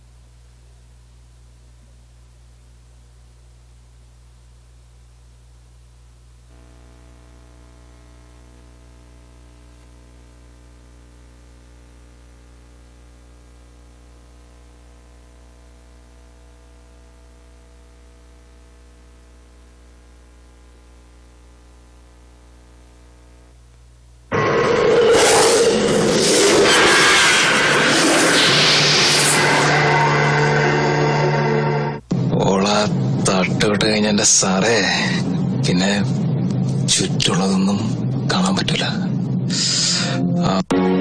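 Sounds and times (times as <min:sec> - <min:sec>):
low electrical hum: 0:00.0 - 0:26.6, 0:27.4 - 0:40.7
loud audio through sound system: 0:24.3 - 0:41.0.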